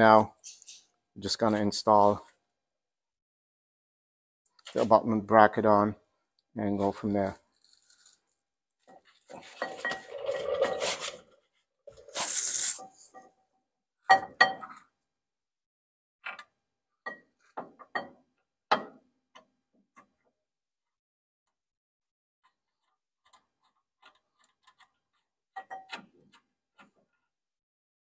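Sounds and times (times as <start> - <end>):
brief hiss: 12.0 - 13.1.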